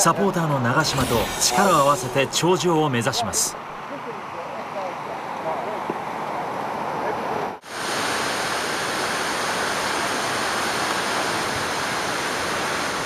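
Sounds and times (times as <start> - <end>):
waterfall rushing: 0.8 - 4.0.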